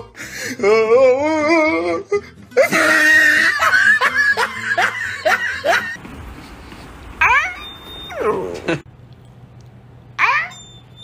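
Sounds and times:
person laughing hard: 2.5 - 6.0, 8.4 - 8.9.

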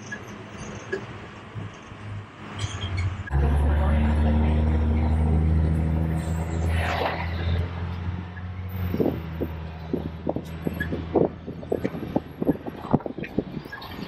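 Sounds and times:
bus engine droning: 0.0 - 14.0.

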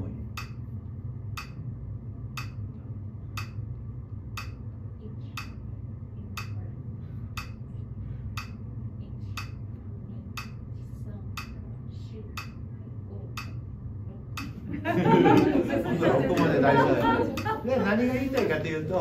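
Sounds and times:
steady low hum: 0.0 - 19.0
metronome clicking: 0.4 - 0.6, 1.3 - 1.6, 2.3 - 2.6, 3.4 - 3.6, 4.4 - 4.6, 5.4 - 5.6, 6.4 - 6.6, 7.4 - 7.6, 8.4 - 8.6, 9.3 - 9.6, 10.4 - 10.6, 11.4 - 11.6, 12.4 - 12.6, 13.4 - 13.6.

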